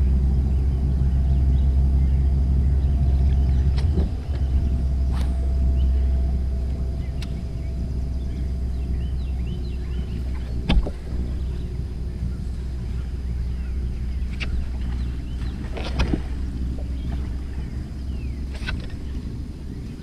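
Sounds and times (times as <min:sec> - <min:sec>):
birds chirping: 0:00.0 - 0:20.0
trolling motor humming: 0:00.0 - 0:20.0
knocks on boat: 0:10.4 - 0:11.1.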